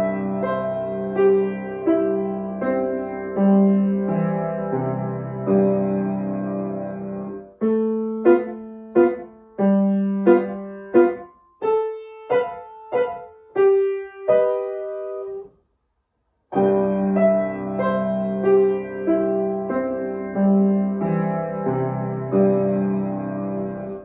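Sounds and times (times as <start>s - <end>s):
upright piano playing: 0.0s - 15.5s, 16.5s - 24.0s.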